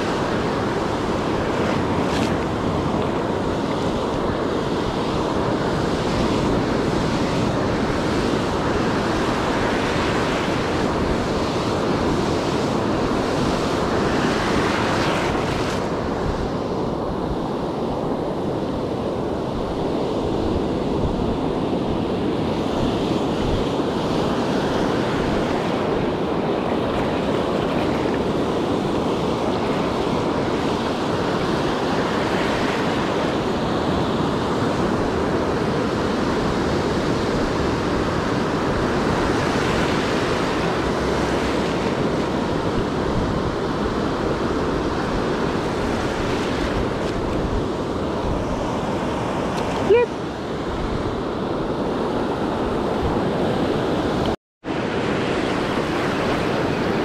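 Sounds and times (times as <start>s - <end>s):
ocean surf breaking: 0.0s - 57.0s
wind buffeting microphone: 0.0s - 57.0s.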